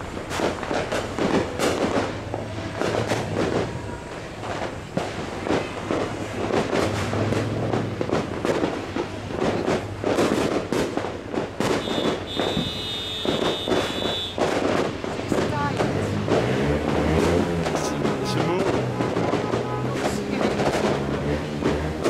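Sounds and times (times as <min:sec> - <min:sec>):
firecrackers crackling and popping: 0:00.0 - 0:22.0
high steady whistle: 0:11.8 - 0:14.4.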